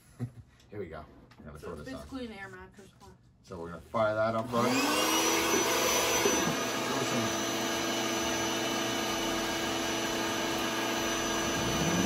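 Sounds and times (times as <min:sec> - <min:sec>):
electric pump whirring: 0:04.4 - 0:12.0.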